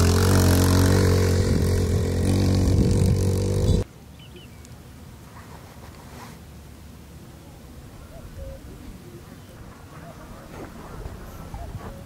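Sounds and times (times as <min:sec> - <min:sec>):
engine running at low pitch: 0:00.0 - 0:03.8.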